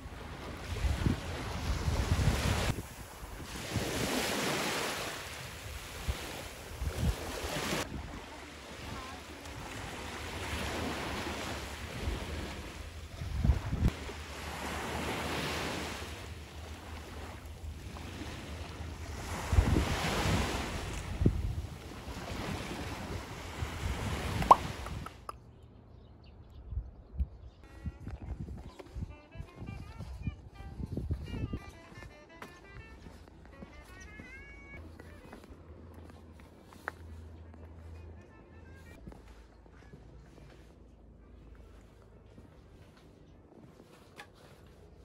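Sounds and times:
sea waves washing onto shore: 0.0s - 25.2s
wind gusting on microphone: 0.6s - 4.5s, 5.4s - 8.2s, 10.4s - 14.0s, 19.2s - 25.2s, 26.5s - 31.6s.

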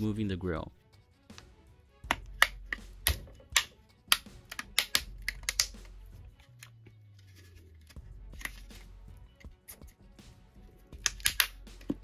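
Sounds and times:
plastic clips clicking and snapping: 2.1s - 6.8s, 11.0s - 12.0s.

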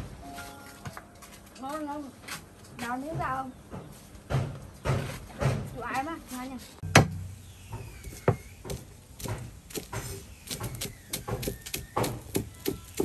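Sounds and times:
knife chopping on wooden board: 8.1s - 13.0s.

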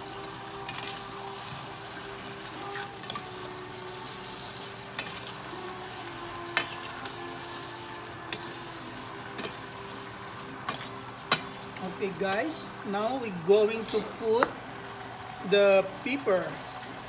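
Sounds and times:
shrimp sizzling in butter: 0.0s - 17.0s
metal spoon clinking against pan: 10.7s - 11.6s.

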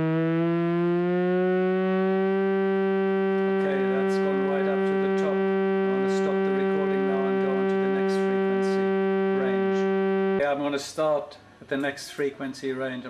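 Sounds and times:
sine sweep test tone: 0.0s - 10.4s.

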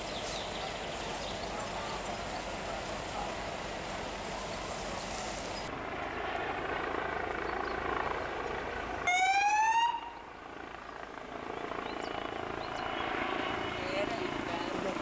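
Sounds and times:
outdoor rumble and hiss: 0.0s - 9.1s
emergency vehicle siren: 9.0s - 10.3s.

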